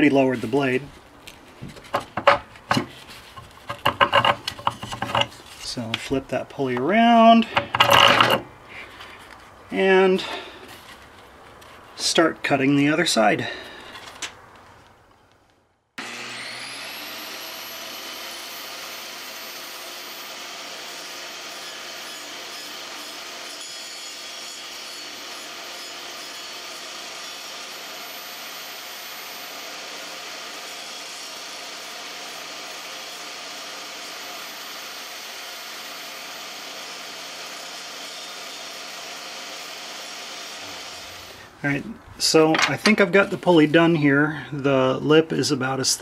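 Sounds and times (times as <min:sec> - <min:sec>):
blade grinding into plywood: 0:00.4 - 0:06.2, 0:07.4 - 0:09.3, 0:16.0 - 0:41.5
table saw whining: 0:01.7 - 0:06.0, 0:07.1 - 0:08.8, 0:16.0 - 0:41.6.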